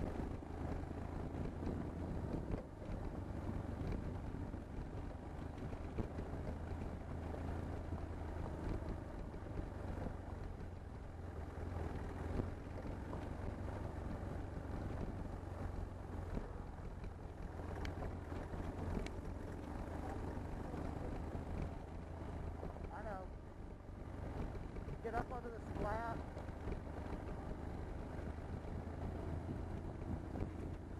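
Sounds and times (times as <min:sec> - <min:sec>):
wind noise on microphone: 0:00.0 - 0:10.9, 0:20.3 - 0:30.9
motorcycle engine running: 0:00.0 - 0:30.9.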